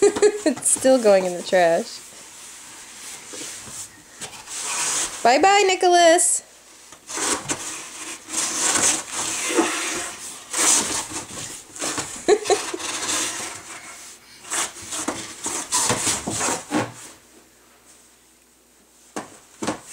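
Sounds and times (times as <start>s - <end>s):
cardboard box rustling and scraping: 3.3s - 5.3s, 7.1s - 17.2s.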